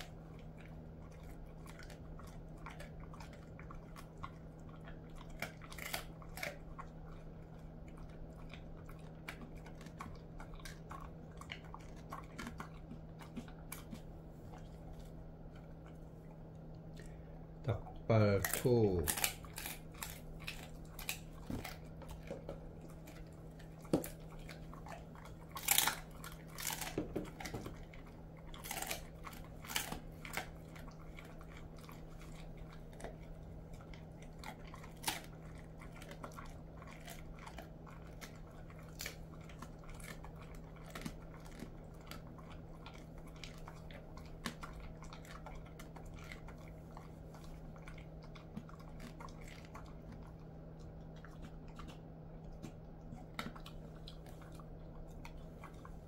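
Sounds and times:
dog chewing crunchy bone: 0.0s - 56.0s.

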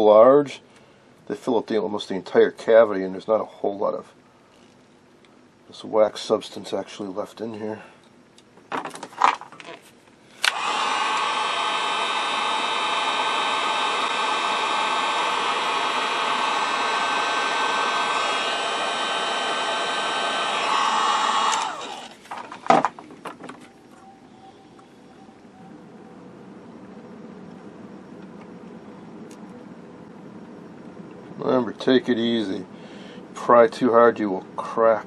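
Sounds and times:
heat gun blowing hot air: 10.4s - 22.2s.

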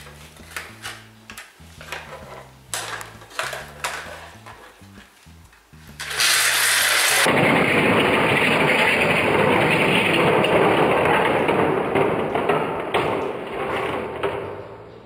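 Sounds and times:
small electric motors whirring: 6.0s - 7.3s
toy cars rattling over plastic track: 6.0s - 14.8s.

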